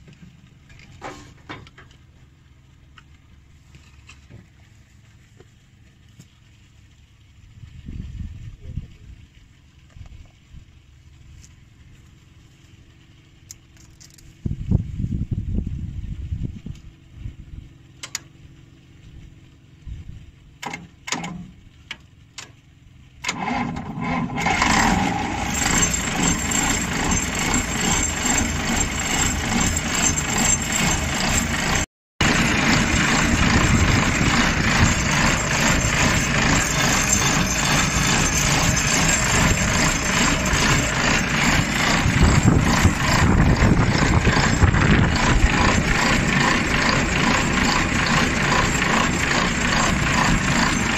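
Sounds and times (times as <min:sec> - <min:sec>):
diesel engine running: 0:21.5 - 0:50.9.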